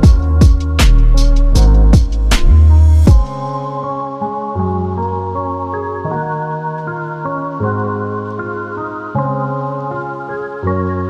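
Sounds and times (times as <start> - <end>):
deep drum hits: 2.0 - 3.4.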